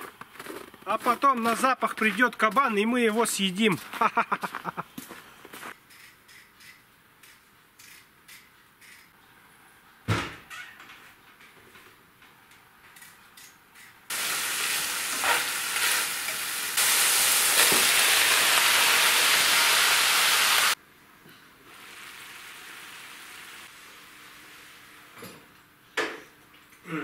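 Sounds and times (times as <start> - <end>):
potatoes sizzling in a frying pan: 14.1 - 20.8, 21.7 - 25.1.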